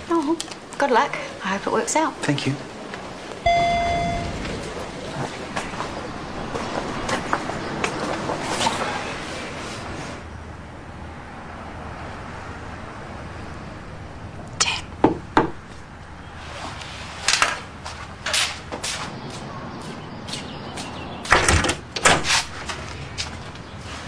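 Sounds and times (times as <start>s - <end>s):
knocking on a door: 15.0s - 15.6s.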